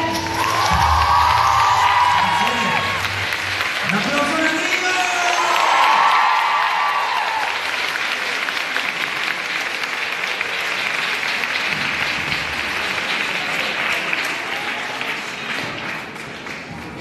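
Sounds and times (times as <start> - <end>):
audience clapping: 0.0 - 17.0.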